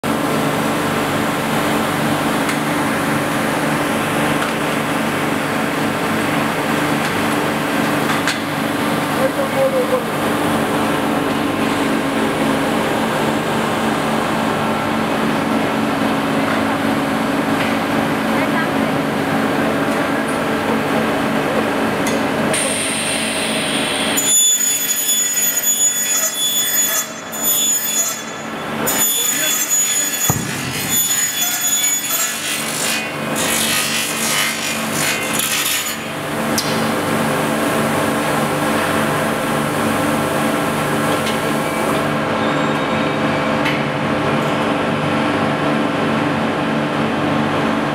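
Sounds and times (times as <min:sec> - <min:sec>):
machinery hum: 0:00.1 - 0:24.2, 0:28.3 - 0:47.9
high metallic whining: 0:23.6 - 0:33.1.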